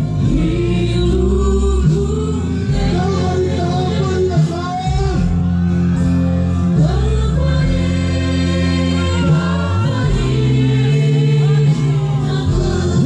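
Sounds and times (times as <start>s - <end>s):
congregation singing: 0.0s - 5.3s, 6.4s - 13.0s
amplified band music: 0.0s - 13.0s
held bass notes: 0.0s - 13.0s.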